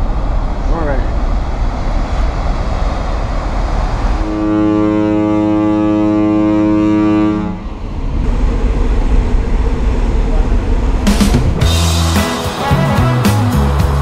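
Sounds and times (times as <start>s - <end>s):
rush of wind and water: 0.0s - 12.7s
ship's horn blast: 4.2s - 7.7s, 11.6s - 14.0s.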